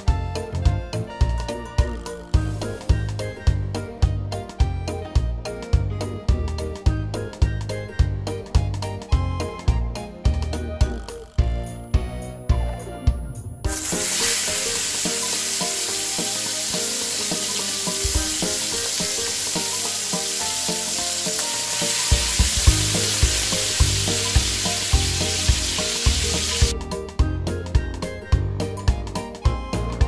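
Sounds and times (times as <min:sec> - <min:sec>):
background music: 0:00.0 - 0:30.0
chicken sizzling in hot oil: 0:13.7 - 0:26.7.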